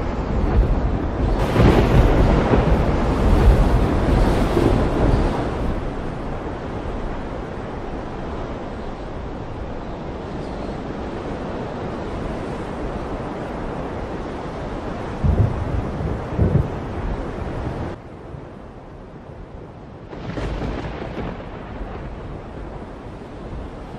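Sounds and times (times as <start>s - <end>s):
wind on microphone: 0.0s - 23.9s.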